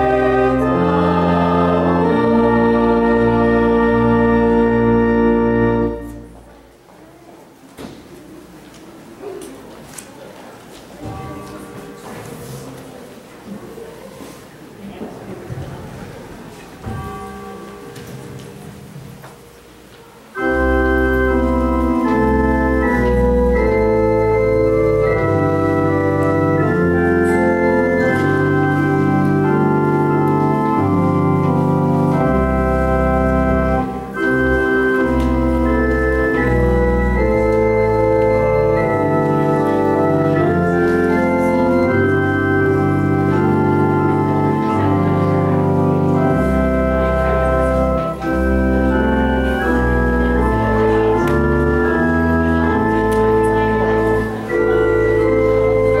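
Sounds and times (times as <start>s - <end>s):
organ playing sustained chords: 0.0s - 6.6s, 20.3s - 56.0s.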